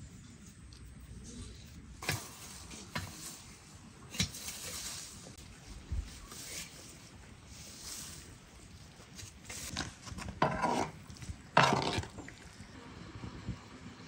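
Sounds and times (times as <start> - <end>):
garden tool striking soil: 2.0 - 5.4
scratchy scraping: 9.1 - 12.3.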